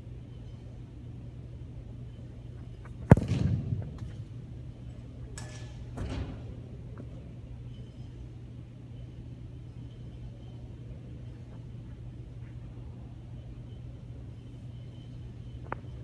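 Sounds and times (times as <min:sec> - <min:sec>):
steady low hum: 0:00.0 - 0:16.0
foot kicking football: 0:02.9 - 0:04.3.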